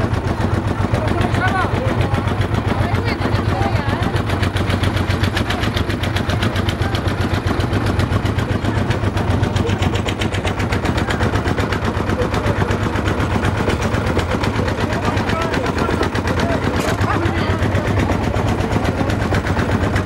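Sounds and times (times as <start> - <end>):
boat engine put-put: 4.2 - 20.0.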